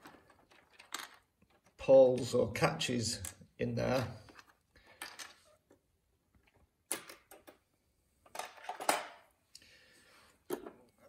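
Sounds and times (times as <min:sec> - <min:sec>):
plastic bricks clicking: 0:00.0 - 0:01.8.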